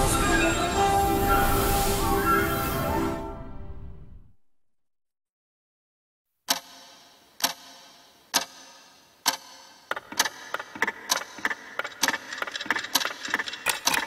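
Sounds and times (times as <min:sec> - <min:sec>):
clock ticking: 0:06.5 - 0:14.0.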